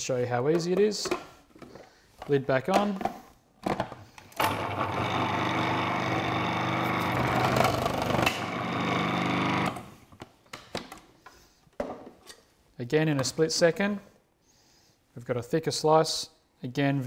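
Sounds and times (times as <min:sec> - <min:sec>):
food processor motor running: 0:04.4 - 0:10.0.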